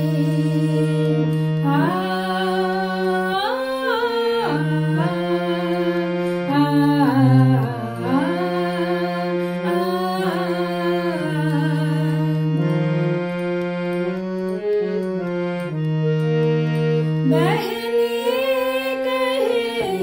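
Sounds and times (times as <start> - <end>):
woman singing: 0.0 - 13.0, 17.2 - 20.0
harmonium: 0.0 - 20.0.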